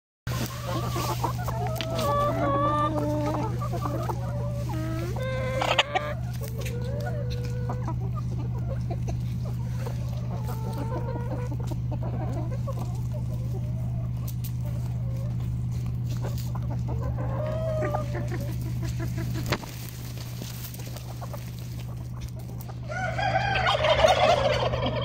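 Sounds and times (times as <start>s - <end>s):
hens clucking: 0.3s - 25.0s
steady low hum: 0.3s - 25.0s.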